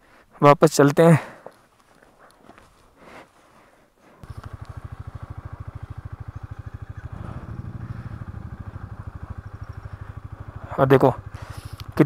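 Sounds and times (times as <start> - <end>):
motorcycle engine idling: 4.2 - 12.0.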